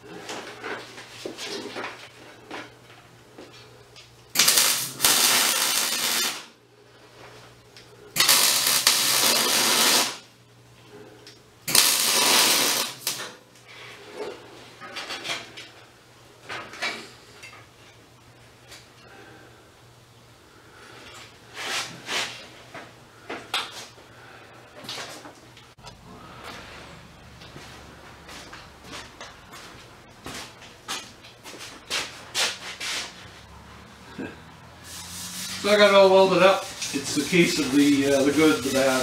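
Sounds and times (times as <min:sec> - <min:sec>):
arc welding crackling hiss: 0:04.3 - 0:06.6, 0:08.1 - 0:10.3, 0:11.6 - 0:13.4, 0:34.8 - 0:39.0.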